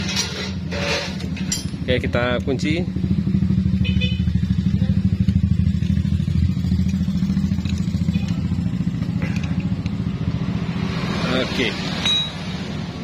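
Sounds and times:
motorcycle engine idling: 1.7 - 10.6.

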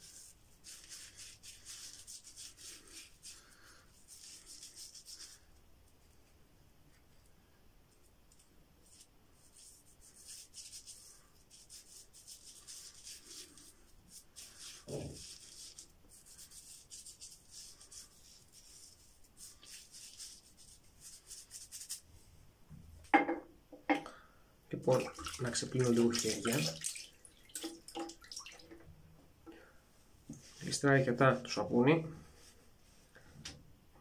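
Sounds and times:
fingertips rubbing shaving lather: 0.0 - 5.5, 8.9 - 22.0.

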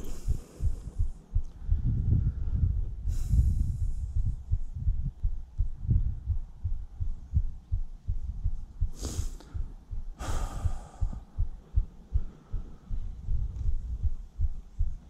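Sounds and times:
person breathing: 0.0 - 5.0, 8.8 - 13.8
wind buffeting microphone: 0.0 - 8.9, 9.6 - 15.0.

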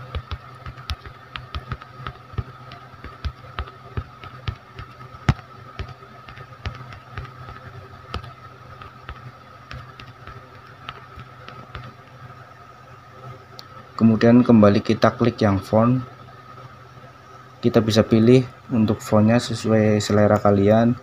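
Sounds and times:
faint steady hum: 0.0 - 21.0
tapping on phone keyboard: 0.1 - 12.0.

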